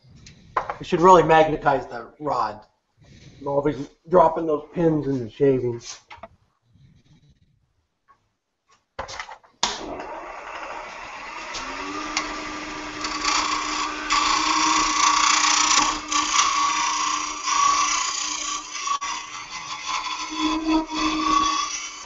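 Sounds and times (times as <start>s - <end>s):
wood lathe running: 9.8s - 22.0s.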